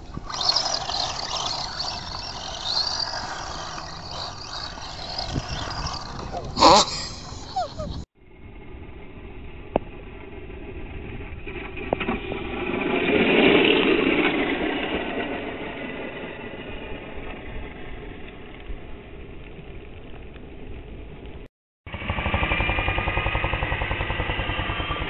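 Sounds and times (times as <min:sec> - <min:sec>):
toy car motor driving past: 0:00.0 - 0:08.0, 0:21.9 - 0:25.0.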